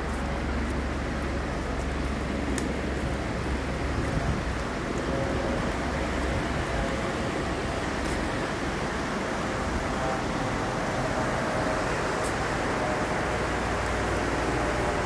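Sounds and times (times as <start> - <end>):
rushing whitewater rapids: 0.0 - 15.0.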